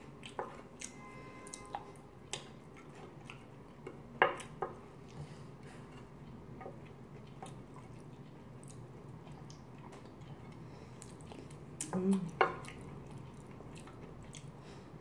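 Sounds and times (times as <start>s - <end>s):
soft chewing: 0.0s - 15.0s.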